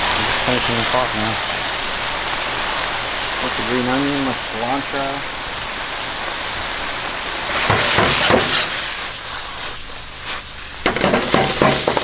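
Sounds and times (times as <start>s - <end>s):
vegetables sizzling in a wok: 0.0s - 12.0s
wok clattering knocks: 10.8s - 12.0s.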